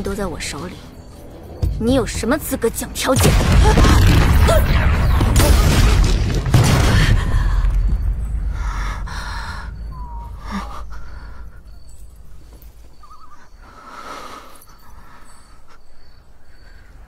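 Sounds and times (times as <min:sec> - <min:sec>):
deep rumbling boom: 0:03.2 - 0:11.9
faint insect chirps: 0:07.4 - 0:17.0.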